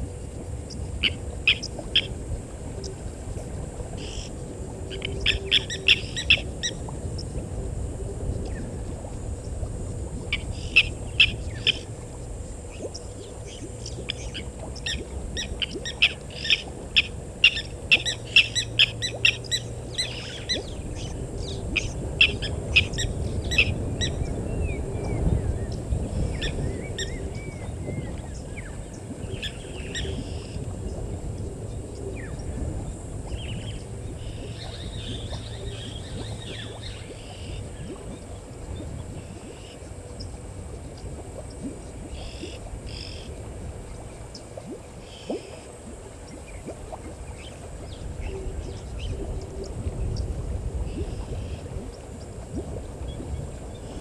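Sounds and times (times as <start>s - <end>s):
low background rumble: 0.0s - 54.0s
bird whistled glides: 13.2s - 30.6s, 33.3s - 39.8s.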